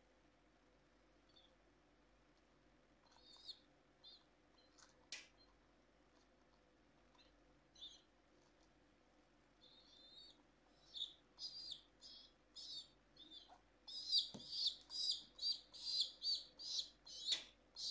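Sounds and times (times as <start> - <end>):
baby pigeon squeaky peeps: 1.3 - 1.6, 3.0 - 5.6, 7.1 - 8.2, 9.6 - 17.9.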